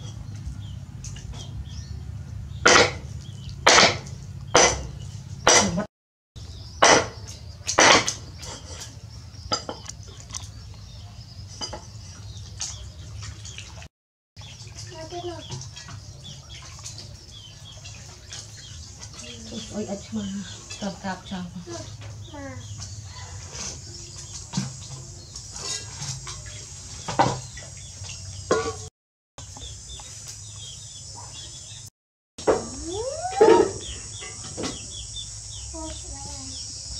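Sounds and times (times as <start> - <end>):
metal pots and utensils clanking: 6.8 - 10.0, 11.5 - 11.9, 24.5 - 27.6, 28.5 - 28.9.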